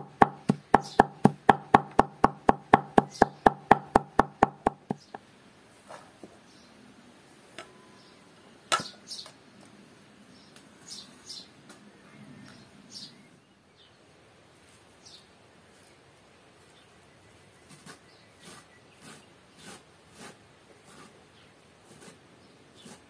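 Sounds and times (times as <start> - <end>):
birds chirping: 0.0 - 1.2, 3.0 - 3.6, 4.7 - 5.2.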